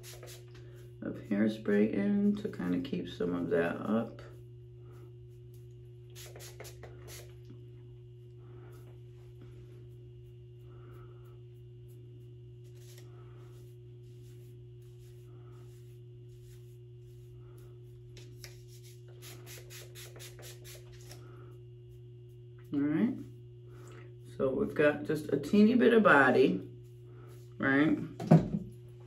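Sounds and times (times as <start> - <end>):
hairspray hissing: 0.0 - 0.5, 6.1 - 7.4, 18.5 - 21.2.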